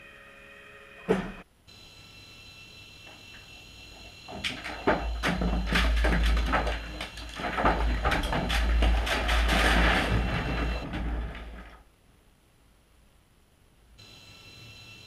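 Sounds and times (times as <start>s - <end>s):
objects clattering and sliding: 4.0s - 11.9s.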